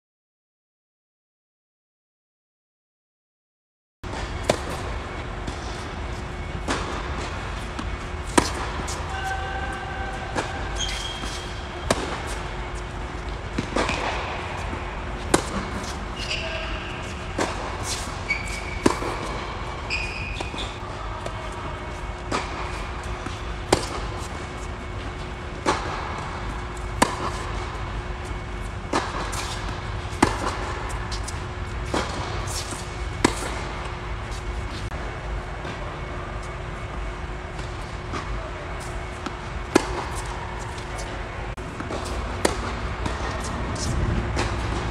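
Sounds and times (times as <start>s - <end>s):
tennis ball struck by rackets: 4.1s - 5.6s, 6.6s - 9.2s, 10.3s - 25.0s, 25.6s - 34.6s, 37.6s - 41.1s, 41.7s - 44.8s
tennis ball bouncing on court: 4.1s - 9.4s, 10.3s - 34.9s, 37.5s - 44.8s
steady low hum: 4.1s - 44.9s.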